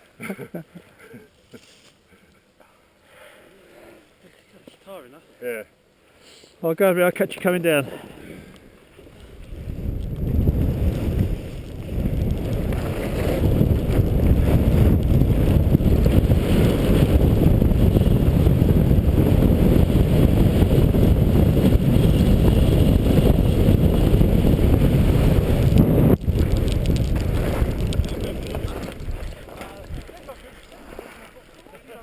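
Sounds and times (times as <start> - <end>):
wind buffeting microphone: 9.3 - 31.0.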